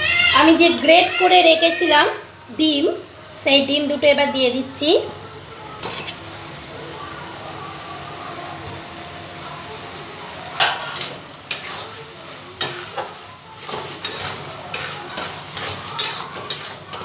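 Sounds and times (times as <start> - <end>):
pan sizzling: 0.0 - 17.0
metal spatula scraping a pan: 5.8 - 6.4, 10.6 - 17.0.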